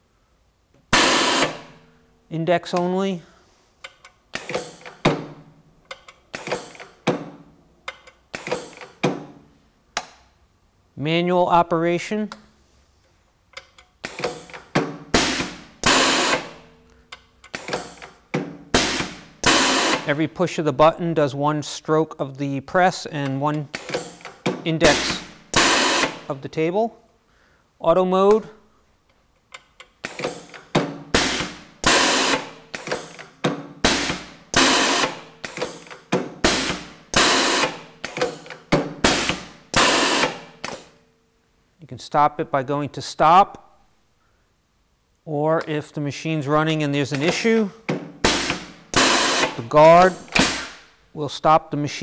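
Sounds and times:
sharp hiss of exhausting air: 15.2 - 16.5.

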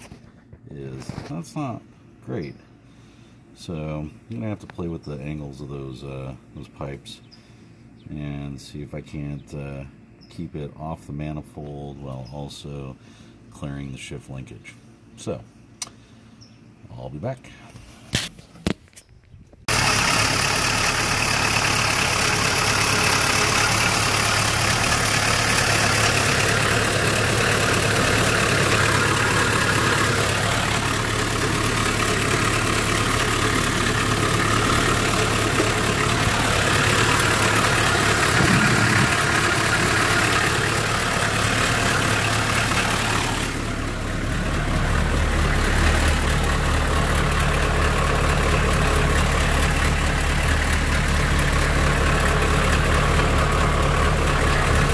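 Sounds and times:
diesel engine idling: 19.7 - 54.9.

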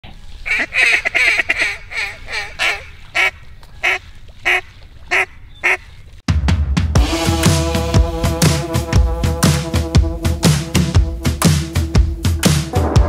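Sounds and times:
duck quacking: 0.5 - 5.9.

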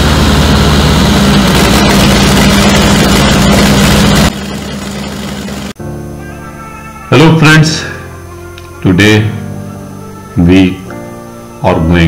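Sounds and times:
diesel engine running: 0.0 - 5.8.

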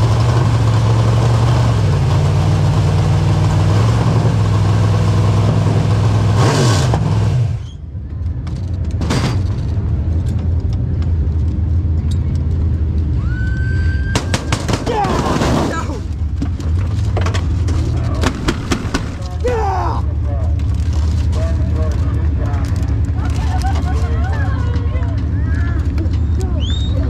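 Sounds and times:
race car engine running: 0.0 - 7.6, 14.4 - 27.0.

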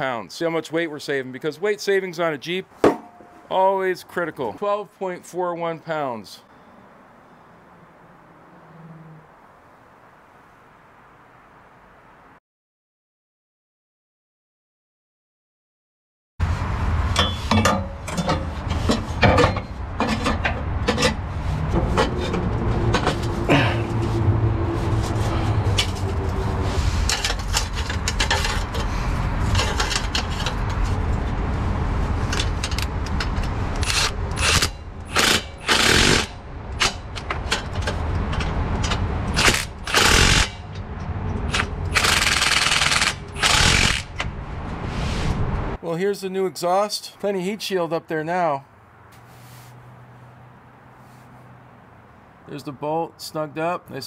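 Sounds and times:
impact tool hammering: 2.8 - 3.4
metal knocks and clanks: 2.8 - 3.5, 17.1 - 24.0.

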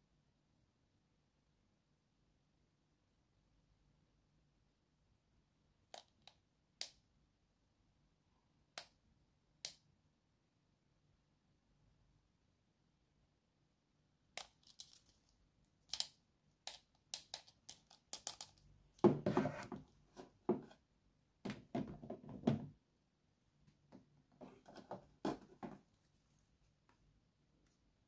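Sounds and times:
plastic toy pieces clicking: 14.4 - 18.7
rustling and knocking: 19.0 - 20.8, 21.4 - 22.8, 23.8 - 25.9.

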